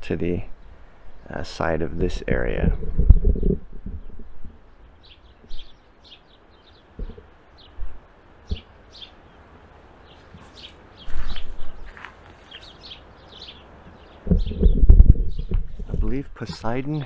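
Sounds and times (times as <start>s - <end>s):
small birds chirping: 0.0s - 17.0s
low thumps: 2.5s - 4.7s, 7.0s - 8.7s, 14.2s - 17.0s.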